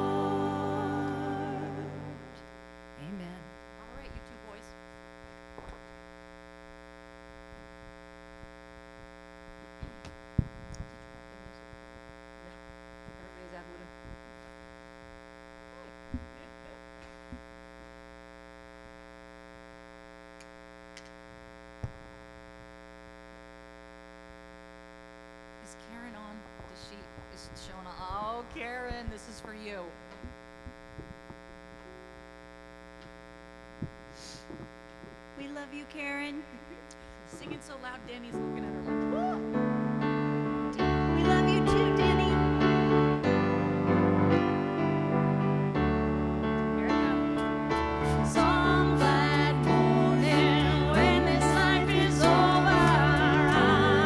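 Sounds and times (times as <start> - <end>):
sustained musical note: 0.0 - 2.4, 38.8 - 54.0
electrical mains hum: 0.0 - 54.0.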